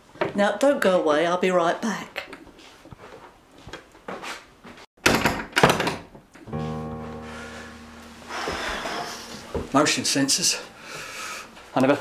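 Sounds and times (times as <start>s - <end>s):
held music chord: 6.5s - 11.8s.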